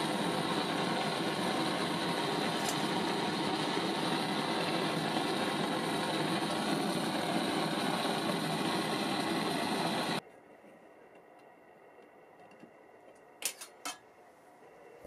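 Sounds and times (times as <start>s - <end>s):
blowtorch flame hissing: 0.0s - 10.2s.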